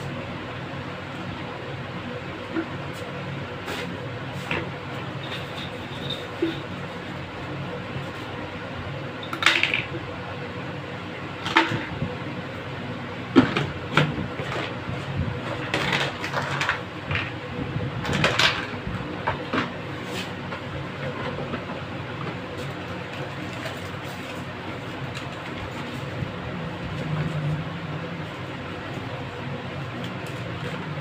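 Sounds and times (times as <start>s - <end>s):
steady low hum: 0.0s - 31.0s
plastic parts knocking and scraping: 15.4s - 17.4s.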